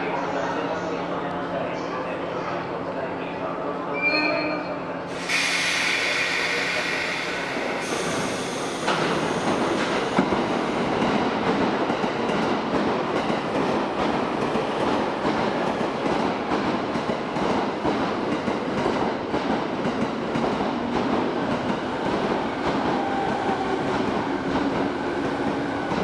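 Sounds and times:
high hiss: 0:05.1 - 0:10.0
train wheels rumbling on rails: 0:05.1 - 0:26.0.

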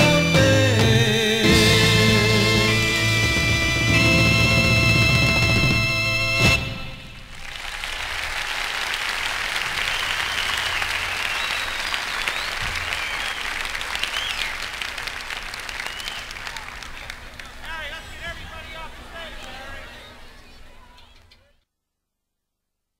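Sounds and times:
band final chord: 0:00.0 - 0:07.2
audience applauding and cheering: 0:07.1 - 0:19.6
whistling: 0:09.6 - 0:14.7, 0:15.6 - 0:16.7.

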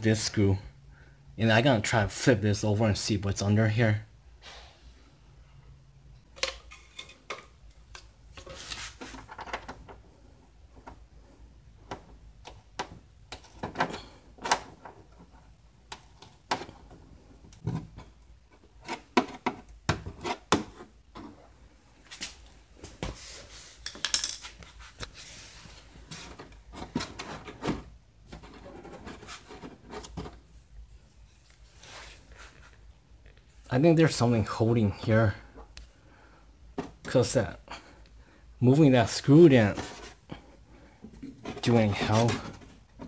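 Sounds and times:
scraping rub: 0:28.4 - 0:30.1.

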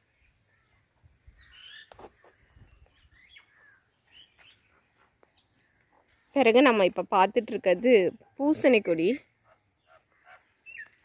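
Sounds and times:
faint bird chirps: 0:00.1 - 0:06.4, 0:09.4 - 0:11.0.

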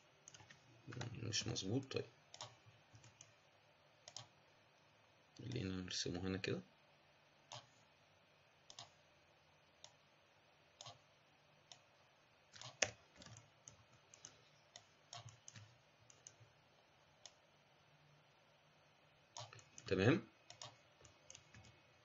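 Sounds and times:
computer mouse and keyboard clicks: 0:00.2 - 0:01.2, 0:02.3 - 0:03.4, 0:04.0 - 0:04.3, 0:08.7 - 0:09.0, 0:10.8 - 0:11.0, 0:12.5 - 0:16.4, 0:19.4 - 0:19.9, 0:20.5 - 0:21.8.

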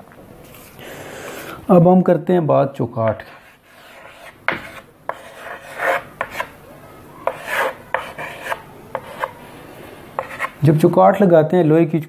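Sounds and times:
chalk tapping: 0:03.2 - 0:06.5, 0:07.2 - 0:09.4, 0:10.2 - 0:10.6
chalk scraping on blackboard: 0:03.2 - 0:06.6, 0:07.2 - 0:09.5, 0:10.2 - 0:10.6.

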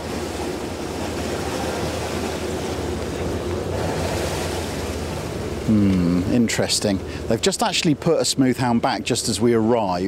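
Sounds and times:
boat engine hum: 0:00.0 - 0:10.0
water noise: 0:00.0 - 0:10.0.

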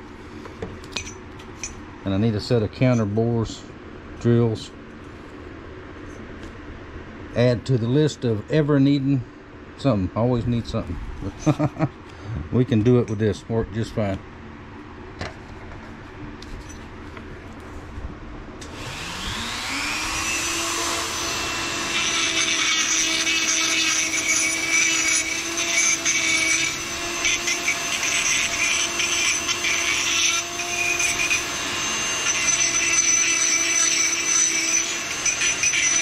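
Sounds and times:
rotary tool whining: 0:18.6 - 0:36.0.

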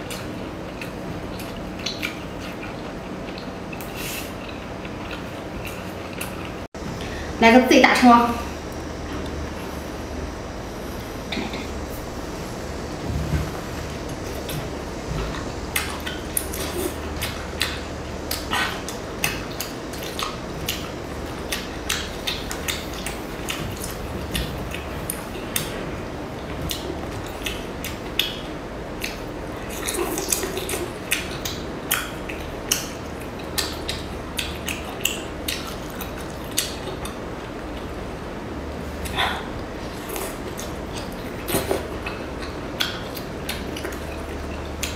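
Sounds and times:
person chewing and smacking: 0:00.0 - 0:06.7, 0:13.8 - 0:38.0, 0:38.8 - 0:44.9
low hum: 0:04.4 - 0:34.4
sharp wet clicks: 0:17.2 - 0:25.8, 0:26.7 - 0:37.2.

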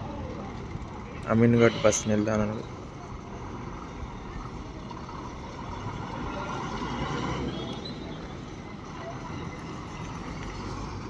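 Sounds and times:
bus diesel engine running: 0:00.0 - 0:11.0
faint high squeal: 0:01.3 - 0:03.0.

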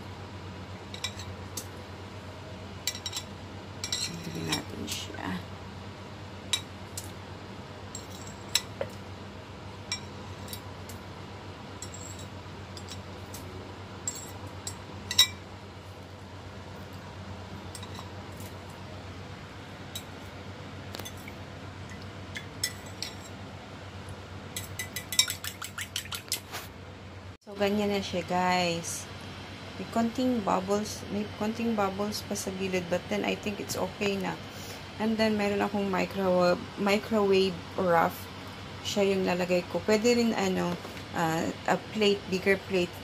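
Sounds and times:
fork clinking against ceramic bowl: 0:24.6 - 0:26.2.

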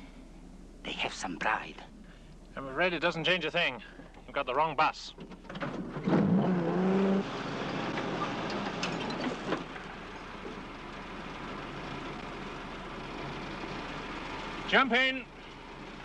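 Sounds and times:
vehicle engine running: 0:06.5 - 0:16.0.

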